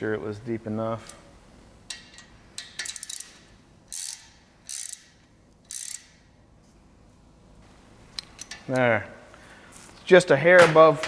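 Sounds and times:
ratchet pawl clicking: 2.6s - 6.2s.

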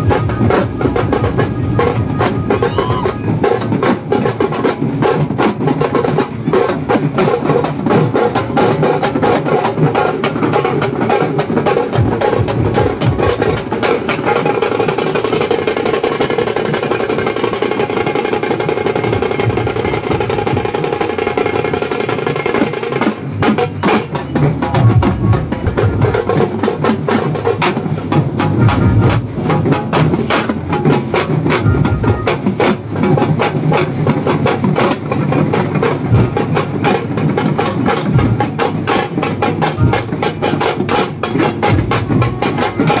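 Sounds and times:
percussion-led music with drumming: 0.0s - 43.0s.

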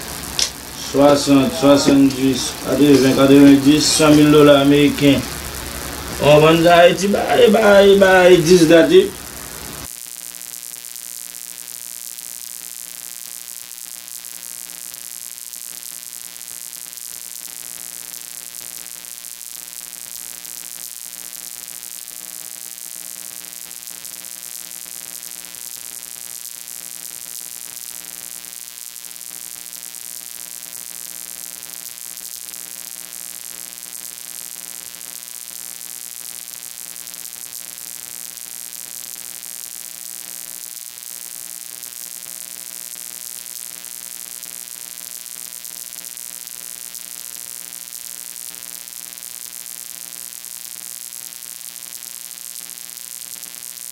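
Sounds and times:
electrical hum: 0.0s - 9.9s
line noise hiss: 0.0s - 53.9s.

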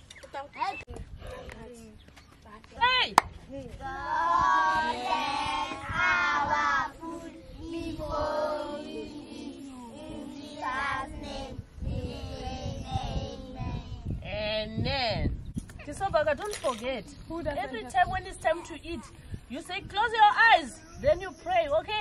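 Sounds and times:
children singing: 4.2s - 14.0s.

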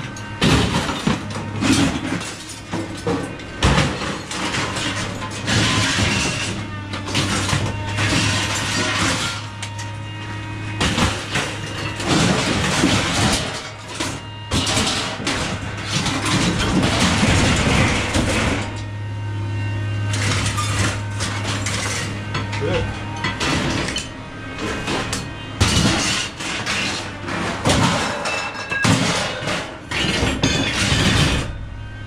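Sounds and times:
clattering and knocks: 0.0s - 10.0s, 10.7s - 18.9s, 20.1s - 31.6s.

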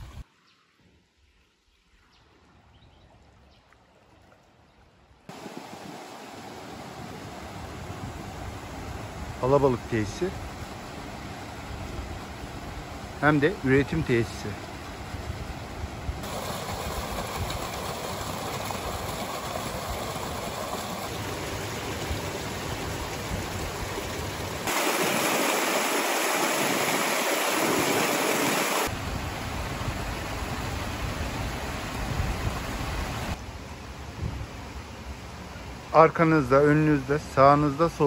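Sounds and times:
water rushing: 0.0s - 38.0s
water gushing into foaming pool: 5.3s - 7.3s, 16.2s - 29.0s.

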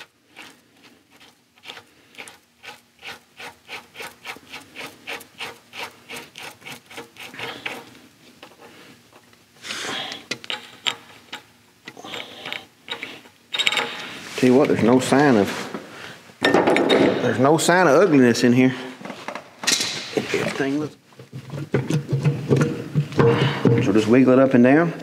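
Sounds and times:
rubbing strokes: 0.0s - 9.0s.

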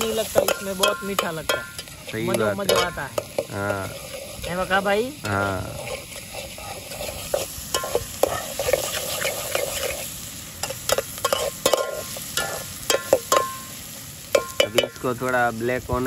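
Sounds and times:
spoon scraping metal pot: 0.0s - 13.7s
food sizzling in oil: 0.0s - 16.0s
spoon clinking on pot: 10.6s - 13.7s, 14.3s - 15.0s.

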